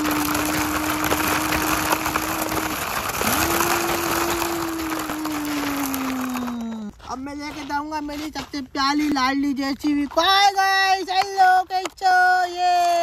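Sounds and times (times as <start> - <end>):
person humming engine imitation: 0.0 - 6.9
toy truck wheels on gravel: 0.0 - 13.0.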